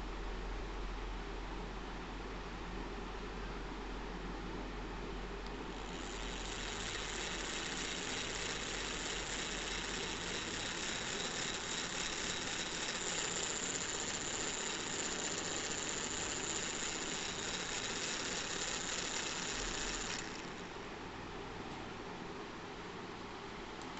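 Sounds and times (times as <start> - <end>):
small motor and gear whine: 5.6 - 20.8.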